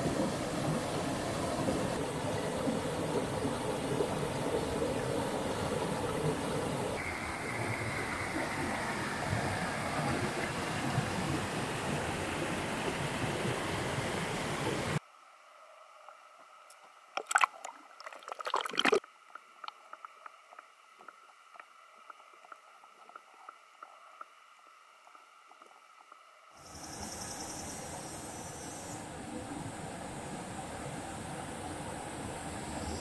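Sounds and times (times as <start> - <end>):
faint ticks: 19.3 - 27.2.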